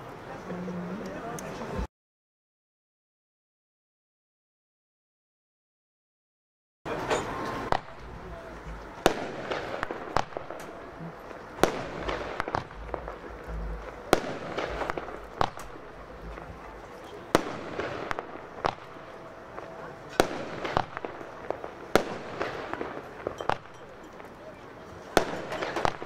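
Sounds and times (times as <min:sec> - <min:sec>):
fireworks bangs: 0:06.9 - 0:26.0
fireworks crackling: 0:06.9 - 0:26.0.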